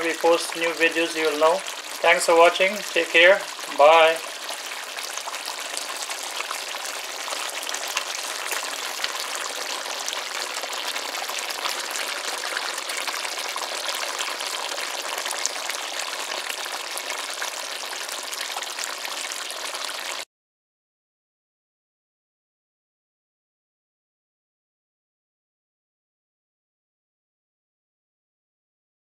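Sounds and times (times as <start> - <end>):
curry bubbling and sizzling: 0.0 - 20.3.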